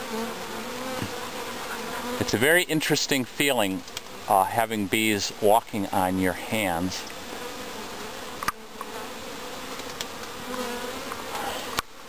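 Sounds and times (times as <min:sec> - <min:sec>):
bee swarm buzzing: 0:00.0 - 0:12.0.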